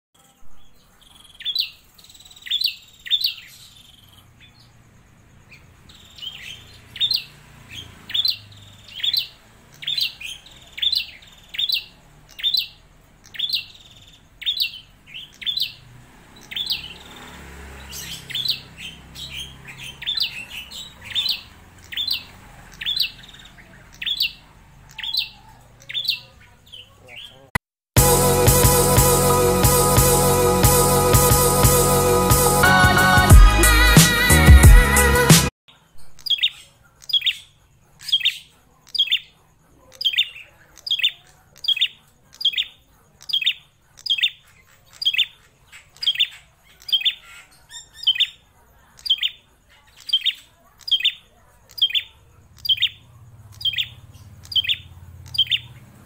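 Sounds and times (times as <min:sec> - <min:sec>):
bird singing sharp notes: 0:00.2 - 0:04.8, 0:50.0 - 0:56.0.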